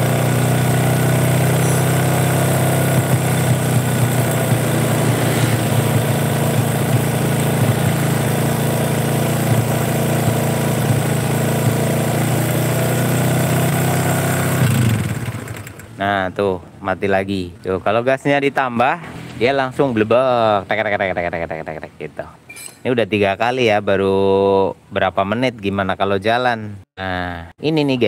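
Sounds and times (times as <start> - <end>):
motorcycle engine idling unevenly: 0.0 - 16.0.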